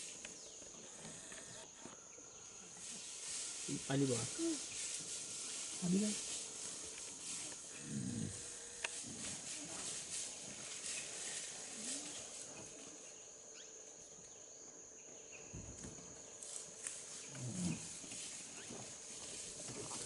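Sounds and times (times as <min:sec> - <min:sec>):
bear snuffling in dry leaves: 0:02.8 - 0:12.8, 0:16.4 - 0:20.0.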